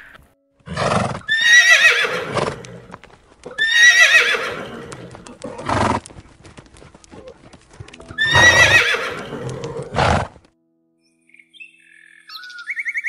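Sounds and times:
horse blowing: 0.6s - 10.5s
horse neighing: 0.7s - 2.9s, 3.5s - 6.0s, 8.1s - 10.4s.

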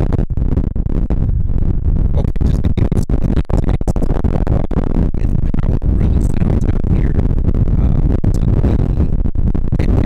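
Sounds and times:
wind buffeting microphone: 0.0s - 10.0s
person speaking: 2.1s - 9.2s.

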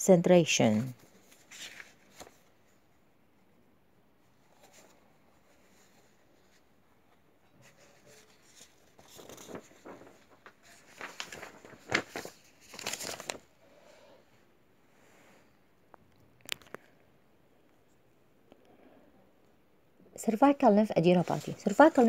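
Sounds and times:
rustling and crinkling handling: 0.6s - 2.5s, 4.4s - 13.6s, 21.0s - 22.0s.

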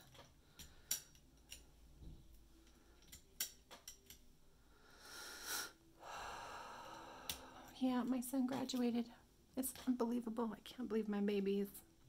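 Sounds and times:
light clicks of small tools: 0.0s - 1.7s, 2.6s - 4.2s, 7.2s - 7.8s.

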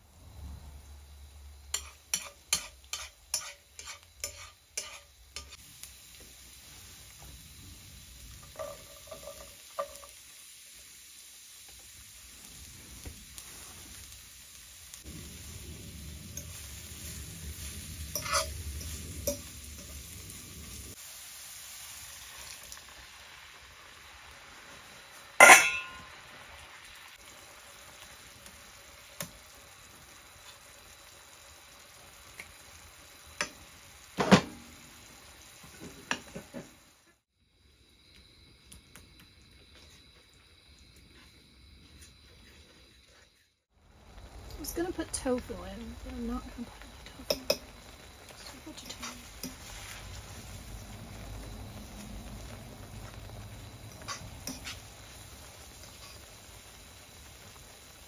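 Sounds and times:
garlic sizzling in oil: 0.0s - 58.0s
fork clinking on pan: 1.7s - 5.6s, 18.2s - 19.5s, 25.4s - 26.1s.

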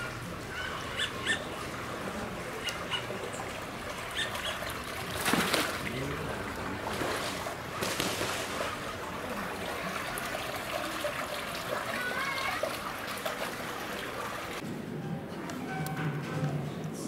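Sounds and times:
water spilling into a pond: 1.6s - 14.6s.

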